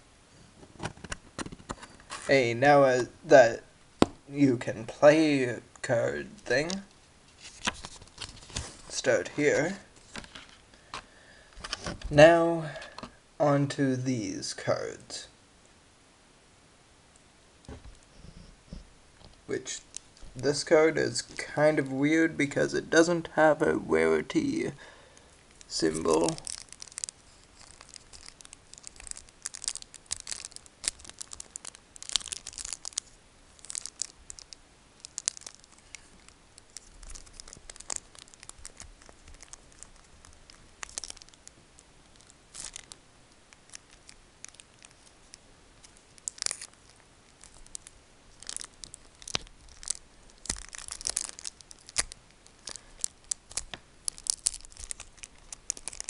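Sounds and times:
foil wrapper and cards crinkling: 6.3s - 12.1s, 24.4s - 56.0s.

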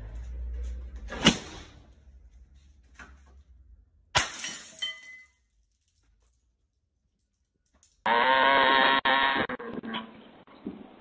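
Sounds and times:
glass sheet shattering: 4.2s - 5.4s
glass shards clinking: 4.2s - 6.0s.

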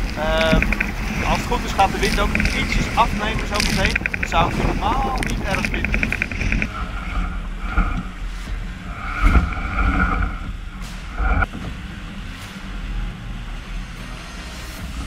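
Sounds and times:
rushing water: 0.0s - 11.5s
high whine: 0.0s - 15.0s
wind: 0.0s - 15.0s.

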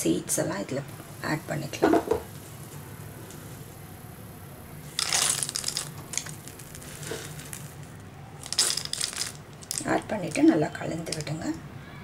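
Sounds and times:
seeds crackling in syrup: 4.7s - 11.4s
seeds rattling into a pan: 4.8s - 11.4s.

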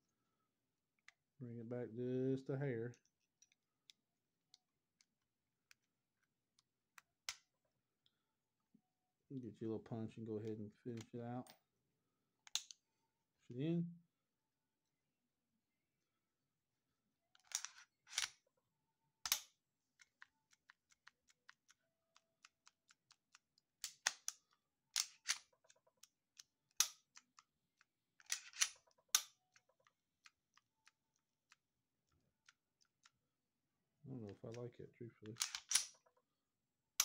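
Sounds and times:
pistol mechanism clicking: 19.2s - 21.0s, 23.2s - 29.7s, 35.3s - 36.0s.

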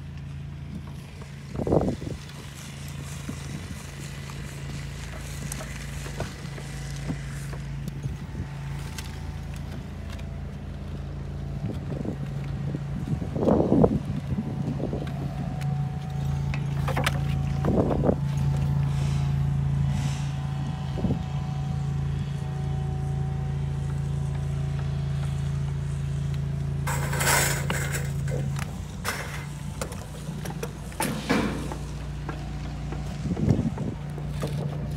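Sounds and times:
low mechanical motor hum: 0.0s - 34.9s
scraping rush: 26.9s - 29.6s.

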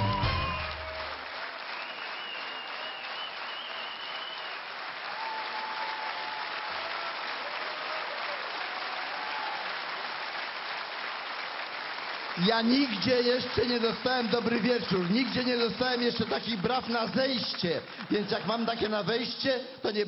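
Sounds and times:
stage music: 0.0s - 4.2s
large audience clapping: 0.0s - 20.0s.

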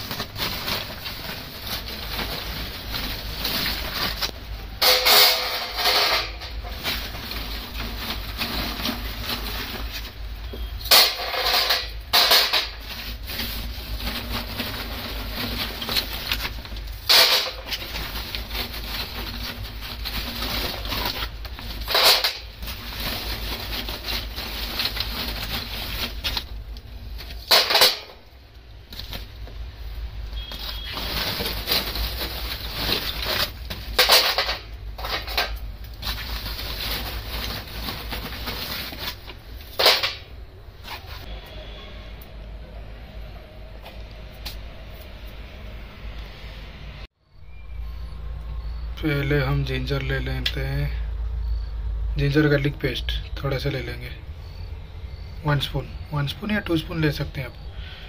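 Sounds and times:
charcoal clattering onto metal grill: 0.0s - 28.3s, 30.5s - 40.4s.

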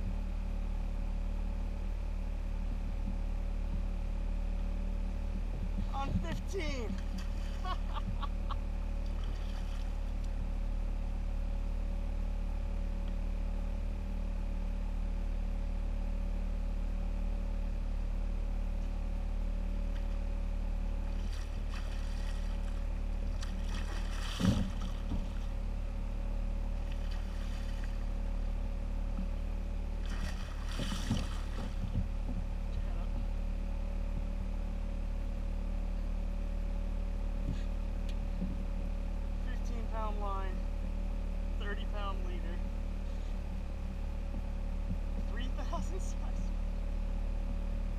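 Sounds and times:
low motor-like hum: 0.0s - 47.9s
fish splashing at the surface: 21.1s - 25.4s, 26.9s - 28.0s, 30.0s - 31.8s.

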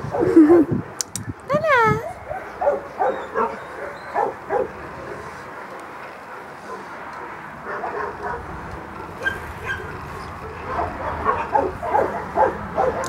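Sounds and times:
dog yipping: 1.7s - 4.7s, 9.2s - 10.0s, 10.7s - 13.0s.

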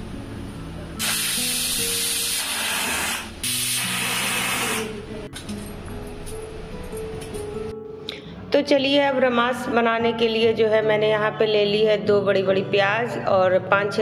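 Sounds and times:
pressure cooker steam hissing: 1.0s - 5.0s.

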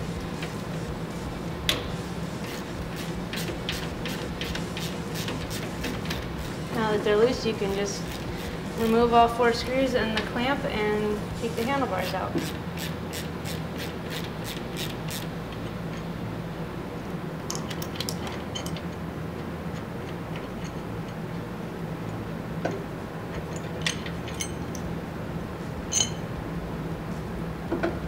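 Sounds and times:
steady low hum: 0.0s - 28.0s
hand ratchet clicking: 12.4s - 16.1s
light metallic clinks: 23.4s - 24.9s, 25.9s - 26.3s.

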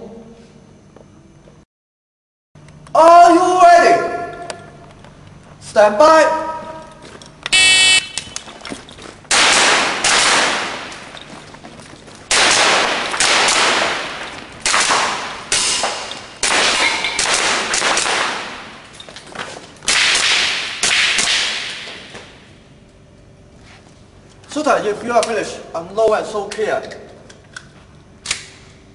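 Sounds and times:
shot timer beep: 7.6s - 8.3s
airsoft pistol shots: 9.3s - 11.0s, 12.3s - 18.8s, 19.9s - 22.1s.

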